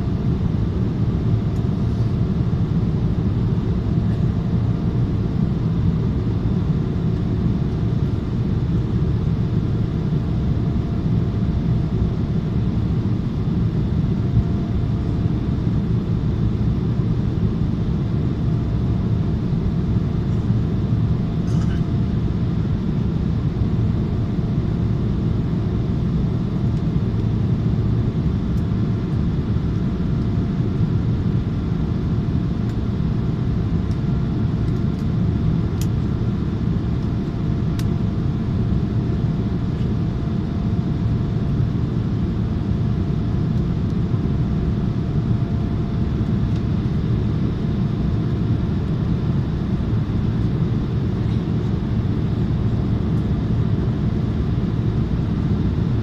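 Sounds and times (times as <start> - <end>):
faint steady hum: 0.0 - 56.0
jet engine cabin rumble: 0.0 - 56.0.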